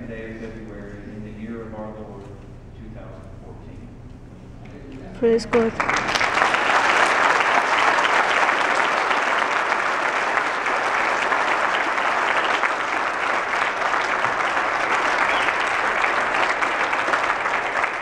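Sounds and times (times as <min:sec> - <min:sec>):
crowd clapping: 0:05.4 - 0:18.0.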